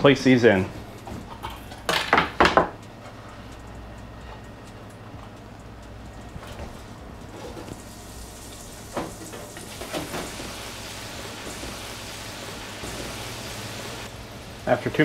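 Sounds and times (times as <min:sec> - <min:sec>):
food deep-frying in oil: 0:07.7 - 0:15.0.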